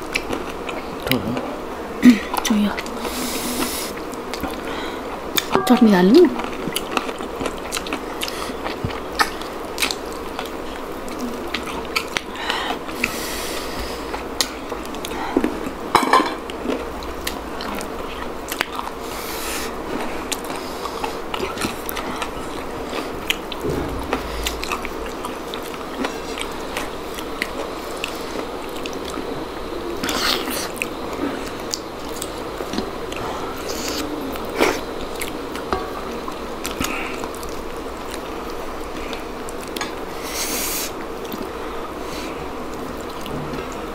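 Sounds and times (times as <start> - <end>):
people chewing and eating: 0.0 - 43.9
plates and bowls clinking: 15.9 - 16.4.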